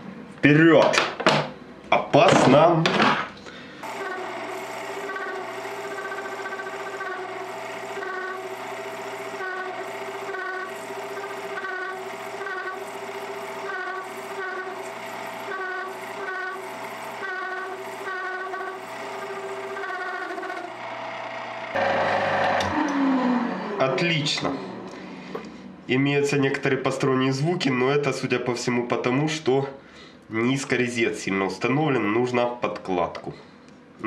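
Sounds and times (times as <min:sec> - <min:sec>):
high-pitched cutting squeals: 0:03.8 - 0:24.7
lathe motor hum and whine: 0:03.8 - 0:25.9.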